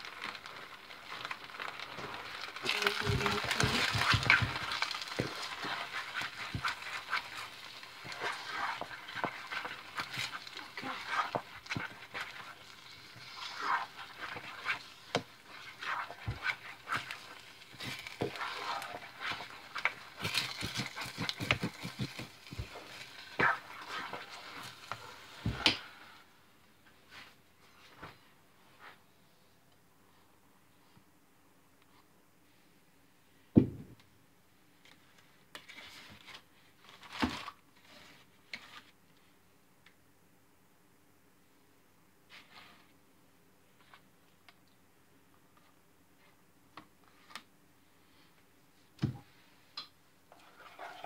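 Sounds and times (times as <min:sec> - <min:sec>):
plastic and paper plates crinkling: 0:00.0 - 0:25.6
spatula stirring in metal pot: 0:00.2 - 0:25.8, 0:50.3 - 0:51.0
thump on countertop: 0:33.6 - 0:34.0.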